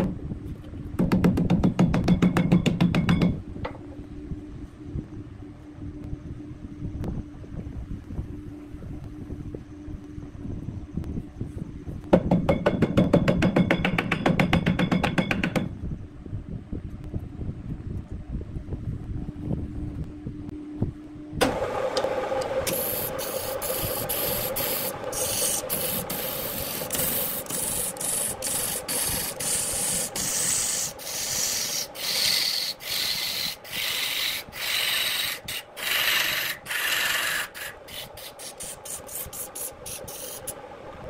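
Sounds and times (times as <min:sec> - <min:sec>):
lathe tool scraping wood: 0:21.4 - 0:40.6
lathe motor hum: 0:21.4 - 0:41.0.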